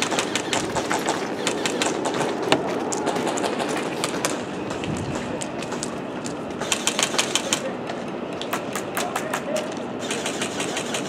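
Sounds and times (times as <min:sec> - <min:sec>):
airsoft guns firing: 0:00.0 - 0:05.8, 0:06.6 - 0:07.7, 0:10.0 - 0:11.0.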